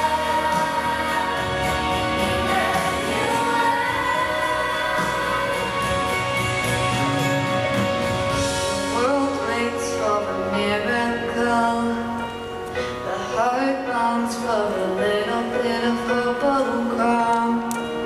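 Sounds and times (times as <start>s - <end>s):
children's choir singing: 0.0s - 6.4s
musical accompaniment: 0.0s - 18.0s.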